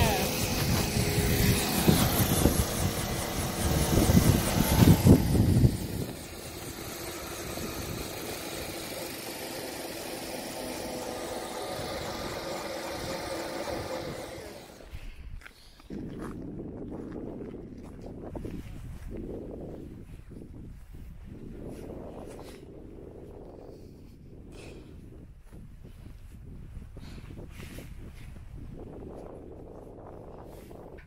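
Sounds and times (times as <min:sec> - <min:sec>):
helicopter engine and rotor: 0:00.0 - 0:14.8.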